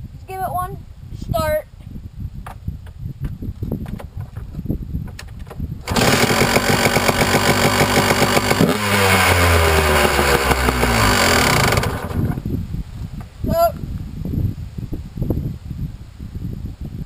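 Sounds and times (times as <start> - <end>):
motorcycle engine revving high: 5.8 - 12.4
motorcycle engine kick-started: 5.8 - 12.5.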